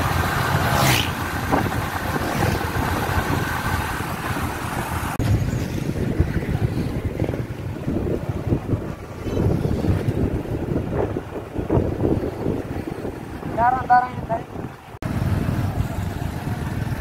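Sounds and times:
street ambience: 0.0 - 17.0
wind noise on microphone: 0.0 - 17.0
vehicle engine running: 14.8 - 17.0.

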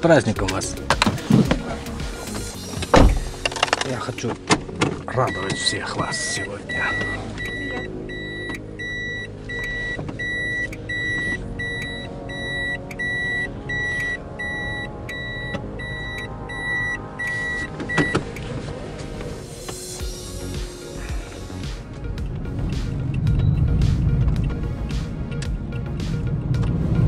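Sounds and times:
reverse warning beeps: 5.2 - 18.2.

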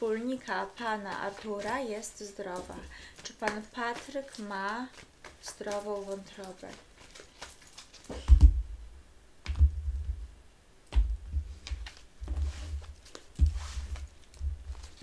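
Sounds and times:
cards being shuffled: 0.4 - 8.6, 10.9 - 15.0
dull low thumps: 9.5 - 11.6, 13.4 - 14.8.

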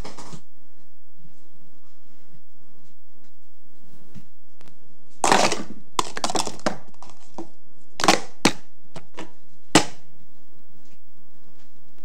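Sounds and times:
plastic cups clattering on table: 5.2 - 10.0.

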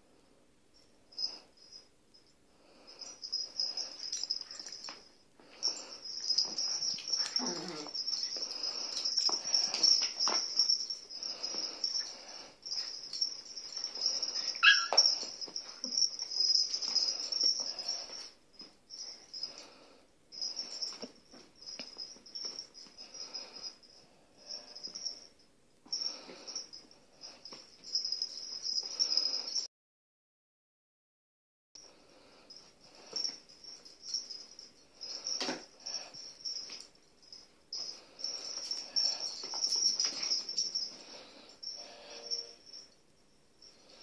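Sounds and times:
puppies squeaking and yipping: 14.2 - 15.3
dog yelp: 14.6 - 15.2.

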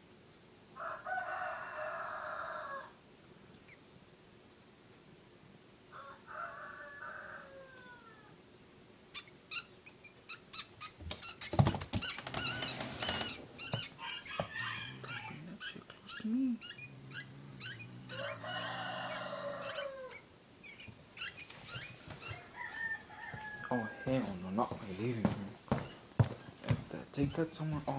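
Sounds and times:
high squeaks: 9.2 - 24.2, 25.7 - 27.9
drawn-out animal call: 10.3 - 24.2
animals scuffling knocks and scrapes: 11.0 - 15.4, 21.4 - 27.9.

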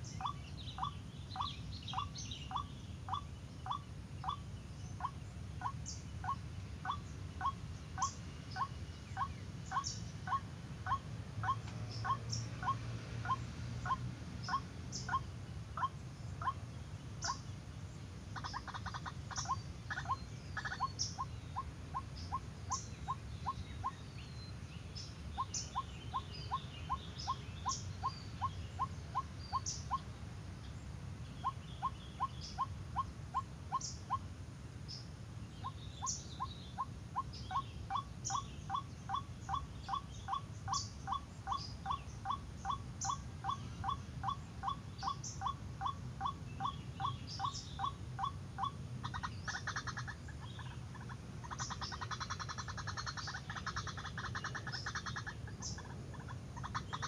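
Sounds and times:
small birds chirping: 0.0 - 57.0
waterhen calling: 18.4 - 24.0, 35.6 - 57.0.

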